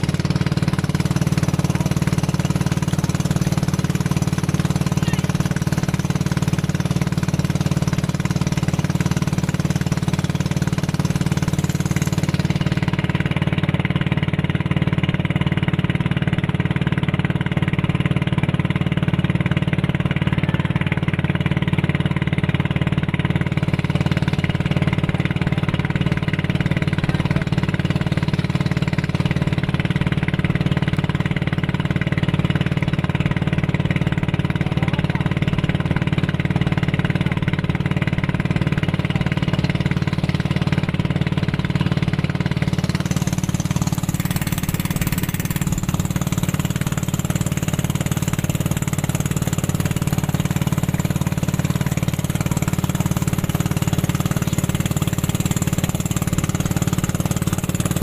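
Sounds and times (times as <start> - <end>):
boat engine humming: 0.0 - 58.0
rushing air and water: 42.1 - 54.1.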